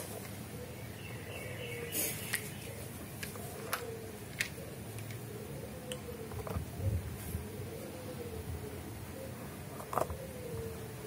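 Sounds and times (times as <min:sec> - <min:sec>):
plastic toys clicking and knocking: 0:03.2 - 0:05.3.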